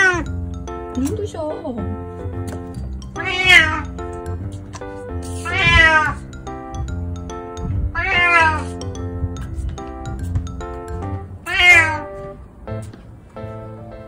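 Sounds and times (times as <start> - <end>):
cat meowing: 0.0 - 0.4, 3.2 - 4.0, 5.3 - 6.3, 7.9 - 8.8, 11.4 - 12.2
background music: 0.0 - 14.0.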